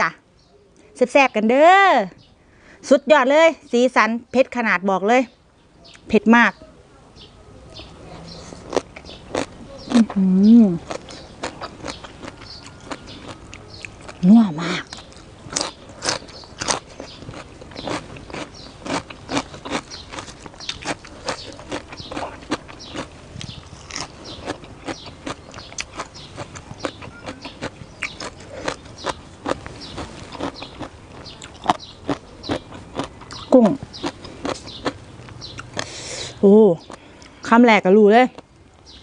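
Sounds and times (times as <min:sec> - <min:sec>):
crunching and chewing cucumber: 0:08.1 - 0:36.0.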